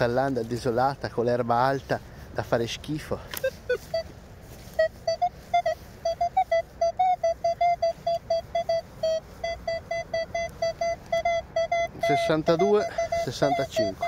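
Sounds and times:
metal detector beeps: 3.3 - 4.1, 4.7 - 14.0.

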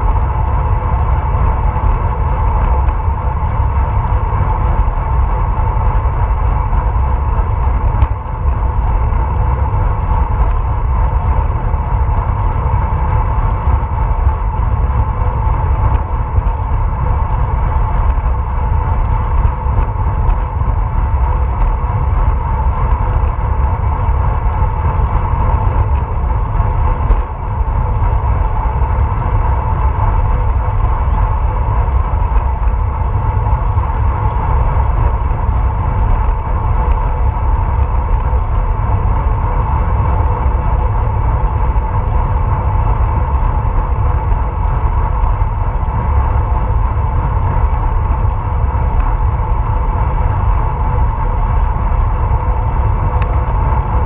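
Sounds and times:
bicycle tyre and drivetrain noise: 0.0 - 54.0
wind rumbling on microphone: 0.0 - 54.0.

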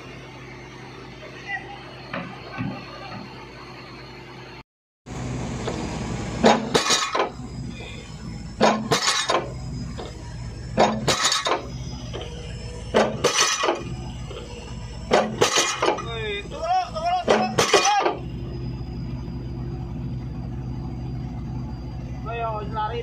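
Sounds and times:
piling rig engine hum: 0.0 - 23.0.

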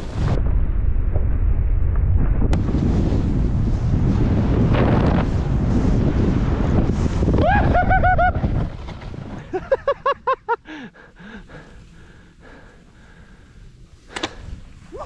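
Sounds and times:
wind rushing on microphone: 0.0 - 9.9
snowboard sliding on snow: 2.6 - 15.0
person whooping: 7.4 - 8.4.

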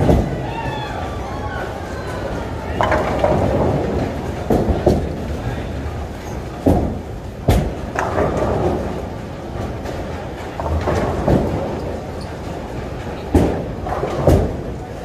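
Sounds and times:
balls striking pins: 0.0 - 1.2, 2.1 - 5.4, 6.0 - 14.8
bowling balls rolling: 0.0 - 15.0.

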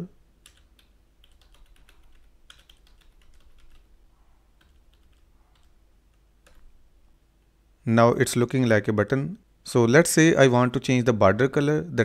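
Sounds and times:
typing on computer keyboard: 0.4 - 3.9, 4.6 - 5.8, 6.4 - 6.7.

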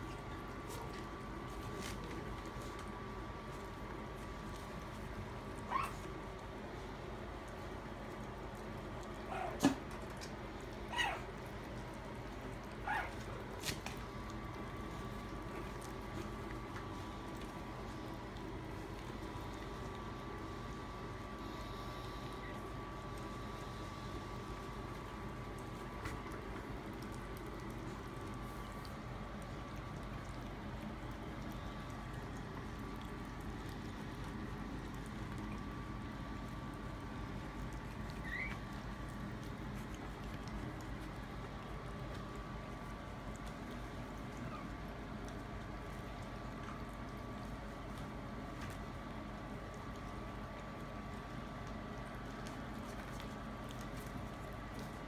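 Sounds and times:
puppies eating wet food: 0.0 - 55.0
steady background hum: 0.0 - 55.0
puppies yelping: 5.7 - 6.1, 9.3 - 9.8, 10.8 - 11.4, 12.8 - 13.3, 38.1 - 38.8
wet smacking and licking: 24.7 - 55.0.

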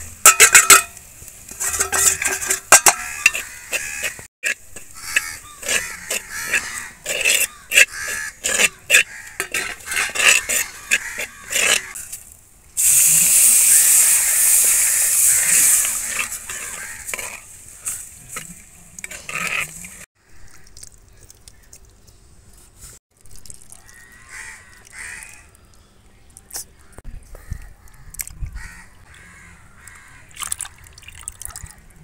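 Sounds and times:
spoon scraping a clay pot: 0.3 - 12.0, 14.6 - 20.1
stirring clicks: 1.5 - 12.0
liquid hissing in hot pot: 12.8 - 16.9.

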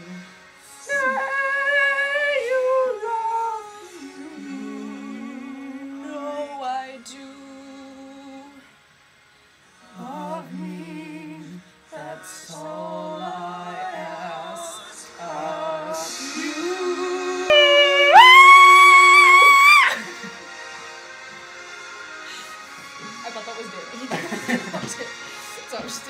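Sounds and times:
girl and boy singing: 0.8 - 8.6, 9.9 - 18.2.

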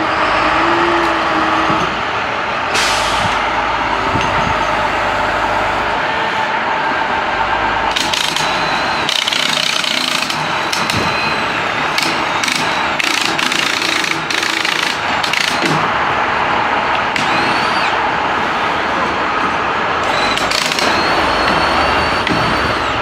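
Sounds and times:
truck engine running: 0.0 - 23.0
brief squeals: 10.5 - 13.0, 17.2 - 18.9, 20.0 - 23.0.

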